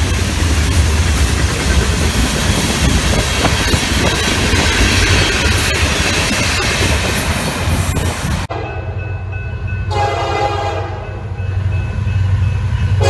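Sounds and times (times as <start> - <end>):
diesel locomotive engine rumble: 0.0 - 13.0
freight cars rumbling on rails: 0.0 - 13.0
train air horn: 9.9 - 11.2.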